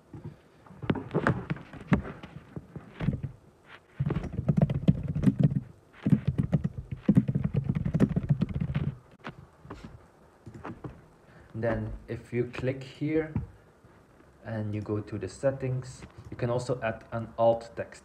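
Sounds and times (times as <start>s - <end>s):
typing on a computer keyboard: 4.2s - 9.0s.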